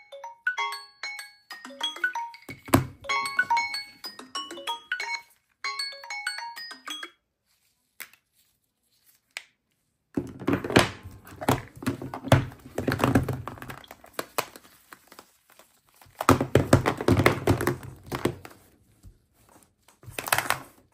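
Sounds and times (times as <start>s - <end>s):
smartphone alarm melody: 0.0s - 7.2s.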